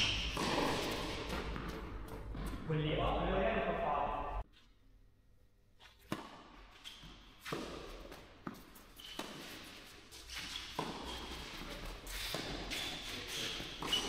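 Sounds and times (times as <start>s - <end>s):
tennis ball strikes and bounces: 0.0s - 2.7s, 6.1s - 6.6s, 7.4s - 9.6s, 10.7s - 11.4s.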